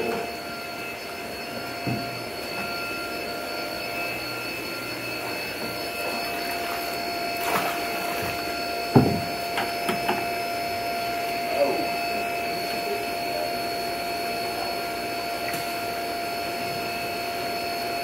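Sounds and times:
aeration blower humming and whining: 0:00.0 - 0:18.0
water churning: 0:06.4 - 0:08.6.

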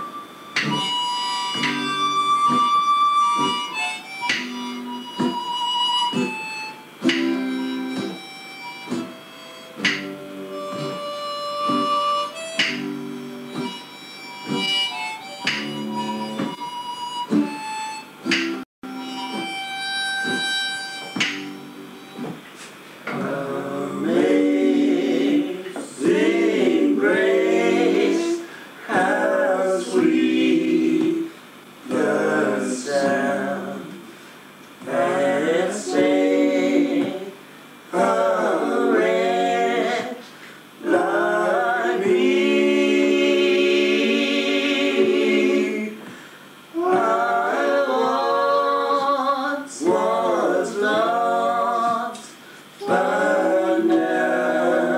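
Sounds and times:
held instrumental note: 0:00.0 - 0:22.4
group singing unaccompanied: 0:23.1 - 0:54.9.

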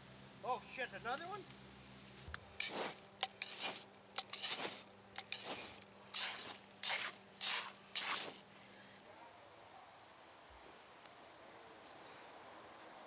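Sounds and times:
embers steaming: 0:00.0 - 0:09.1
hose nozzle spraying water: 0:02.5 - 0:08.5.

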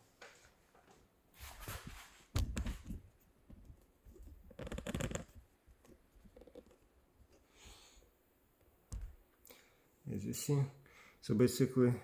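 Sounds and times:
rustling and scraping: 0:00.1 - 0:07.5.

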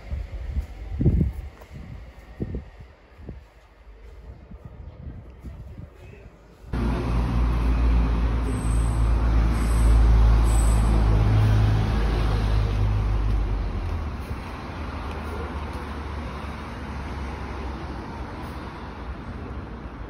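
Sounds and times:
vehicle engine rumbling: 0:06.5 - 0:20.0.

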